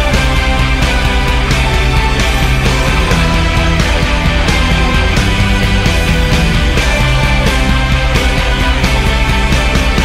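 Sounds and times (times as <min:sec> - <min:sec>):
drums beating: 0:00.0 - 0:10.0
instrumental rock music: 0:00.0 - 0:10.0.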